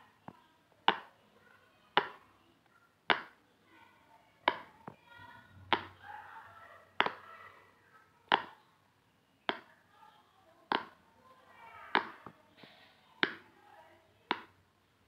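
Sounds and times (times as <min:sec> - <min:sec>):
pop it toy popping: 0:00.2 - 0:01.1, 0:03.1 - 0:03.4, 0:04.4 - 0:05.0, 0:08.3 - 0:08.6, 0:09.5 - 0:09.7, 0:10.7 - 0:11.0, 0:14.3 - 0:14.6.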